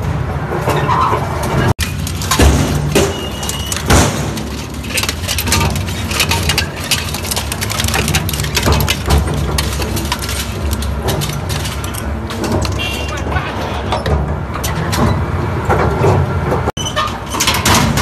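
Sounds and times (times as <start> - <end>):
metal cracking and crunching: 0.5 - 18.0
loud bangs: 1.6 - 14.5.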